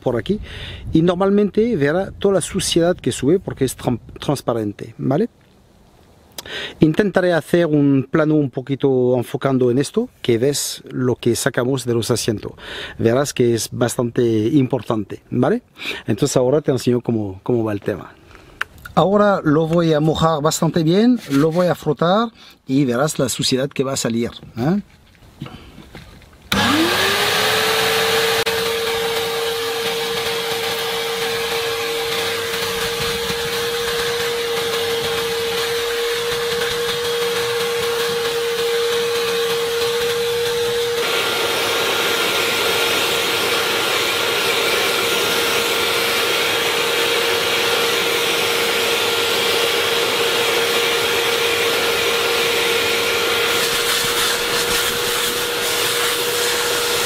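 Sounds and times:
cleaner suction motor whine: 26.5s - 57.0s.

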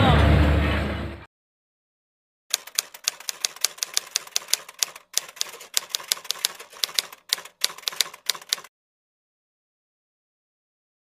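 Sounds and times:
typewriter keys clacking: 2.5s - 8.7s.

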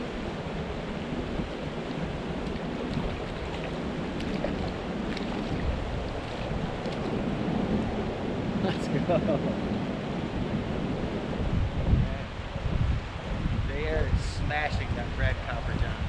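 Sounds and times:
creek water rushing: 0.0s - 11.4s
wind on microphone: 0.0s - 16.0s.

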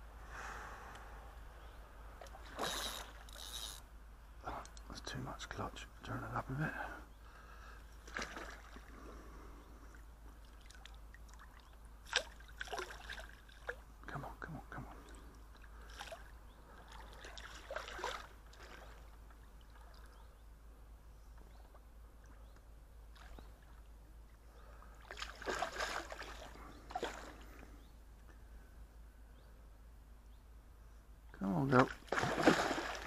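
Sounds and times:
fish splashing in water: 10.5s - 13.8s, 25.0s - 27.4s, 31.9s - 33.0s.

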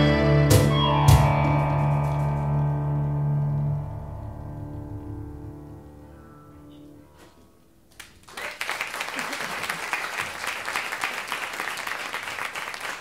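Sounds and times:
audience applause: 8.0s - 13.0s.

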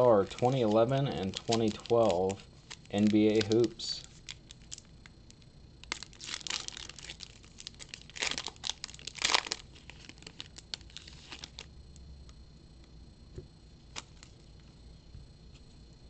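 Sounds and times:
wrapper crinkling and tearing: 0.2s - 4.9s, 5.8s - 11.7s.

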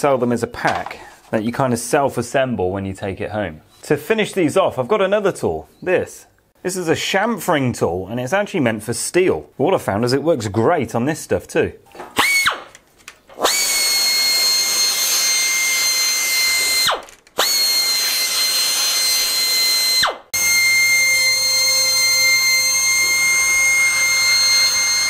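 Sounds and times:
air tool whining: 13.4s - 25.0s.

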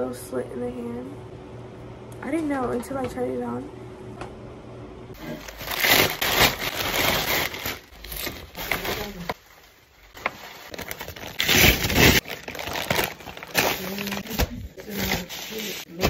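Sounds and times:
plastic bag crinkling: 5.2s - 15.9s.

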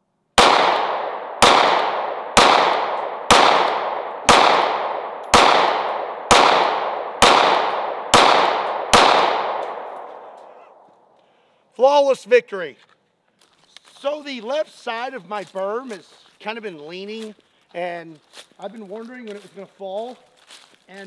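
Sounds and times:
pistol shots with echo: 0.4s - 10.8s.

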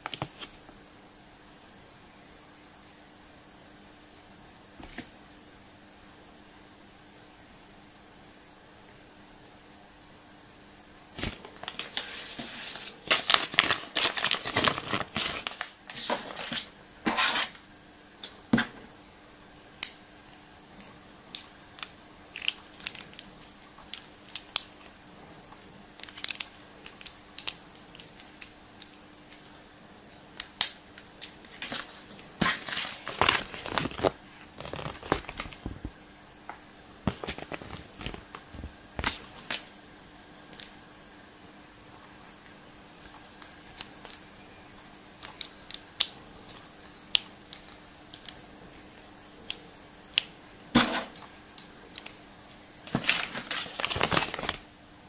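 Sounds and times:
foil wrappers tearing and crinkling: 11.2s - 15.7s, 31.5s - 35.8s, 37.1s - 39.6s, 52.9s - 54.6s
sharp clicks and snaps: 45.2s - 48.4s, 51.2s - 52.2s.

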